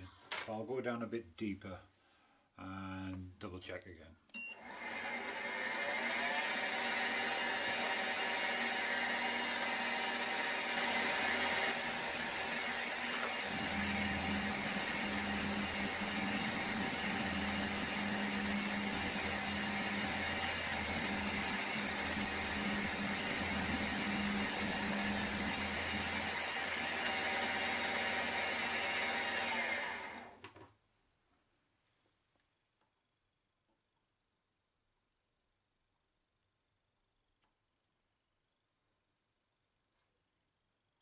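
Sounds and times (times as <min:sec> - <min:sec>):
machine tool motor whine: 0:04.6 - 0:30.4.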